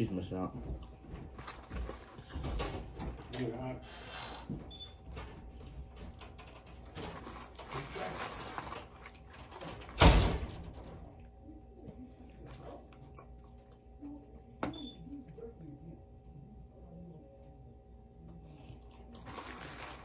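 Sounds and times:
crinkly paper wrappers: 6.2 - 10.0, 19.0 - 20.0
chewing chicken wings: 10.8 - 16.0, 17.4 - 20.0.

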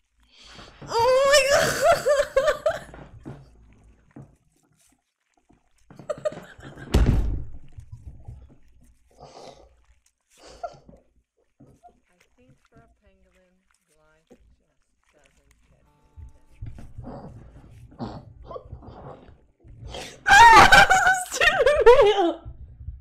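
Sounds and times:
woman laughing: 0.9 - 3.0, 6.0 - 7.0, 20.1 - 22.4
heavy thump: 6.9 - 7.7.

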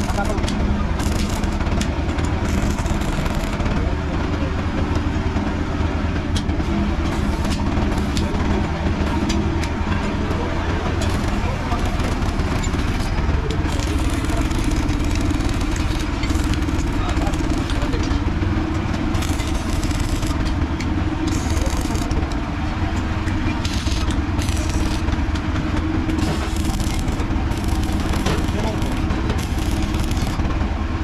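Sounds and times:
welding arc crackling: 0.0 - 3.8, 7.0 - 8.4, 11.0 - 22.4, 23.4 - 25.4, 26.0 - 30.6
low machinery hum: 0.0 - 31.0.

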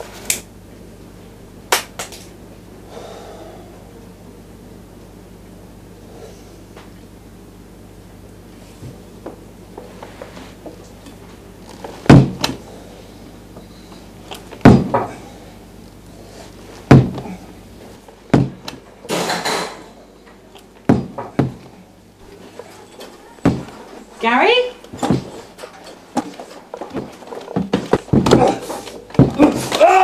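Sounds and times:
loud bangs and thuds: 12.1 - 12.5, 14.6 - 15.1, 16.9 - 17.2, 18.3 - 18.7, 20.9 - 21.7.

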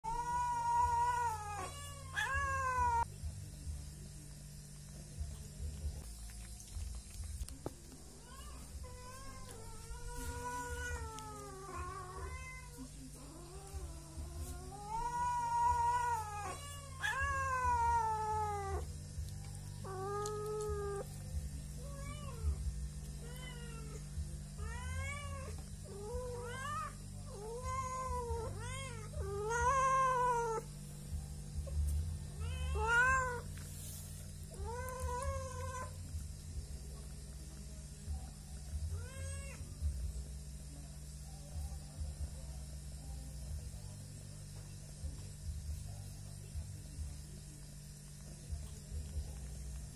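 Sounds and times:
cats meowing: 0.0 - 3.1, 8.0 - 18.9, 19.8 - 21.2, 21.8 - 22.6, 23.2 - 30.7, 31.7 - 33.6, 34.5 - 36.1, 38.9 - 39.7.

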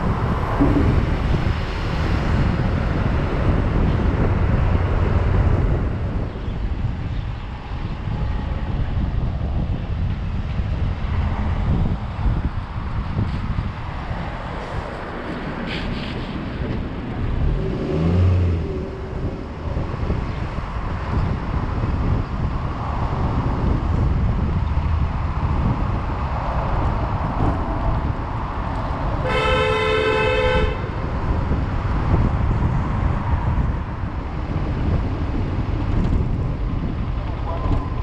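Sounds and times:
city street traffic: 0.0 - 38.0
vehicle horn honking: 29.2 - 30.9.

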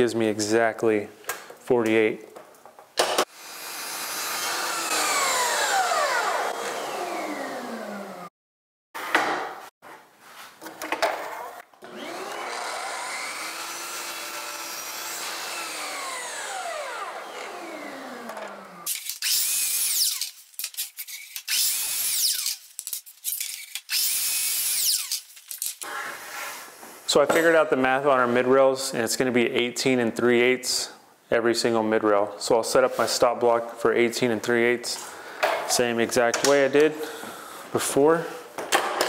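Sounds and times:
miter saw blade whining: 3.4 - 8.3, 11.8 - 20.4.

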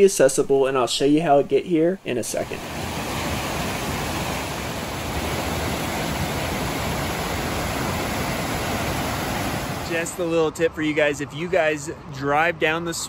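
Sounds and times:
waterfall over rocks: 2.3 - 10.1.

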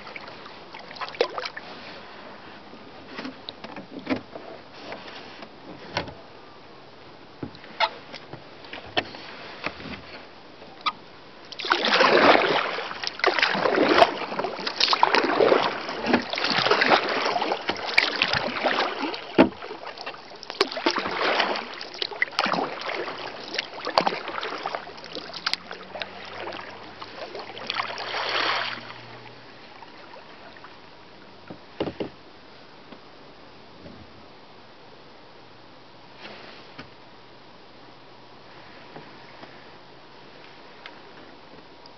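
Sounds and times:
paddle strokes splashing in water: 0.0 - 5.6, 7.5 - 32.1.

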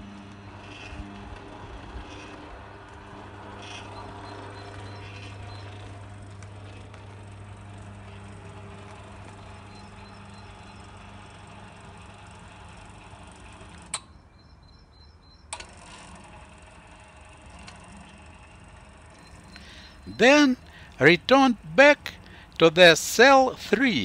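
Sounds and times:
gate motor humming: 0.0 - 24.0.

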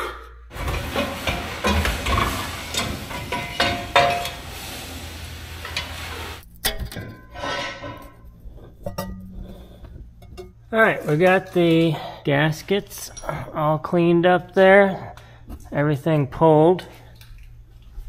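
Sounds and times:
tool scraping metal: 0.5 - 6.4
exhaust pipes clanking: 0.5 - 11.9.

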